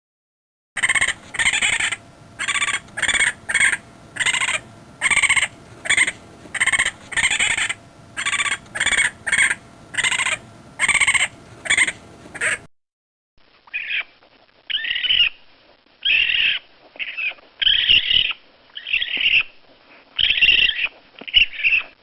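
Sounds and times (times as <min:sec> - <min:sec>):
raccoon chittering: 0:00.8 - 0:12.7, 0:13.7 - 0:14.1, 0:14.7 - 0:15.4, 0:16.0 - 0:19.6, 0:20.2 - 0:22.0.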